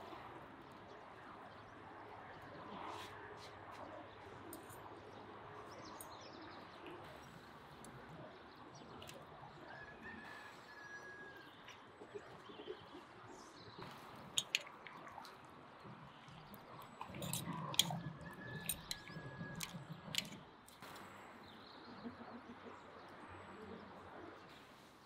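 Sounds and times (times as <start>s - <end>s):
birds calling: 8.8s - 20.5s
metal forks clicking on pot: 14.4s - 14.8s, 17.1s - 20.4s.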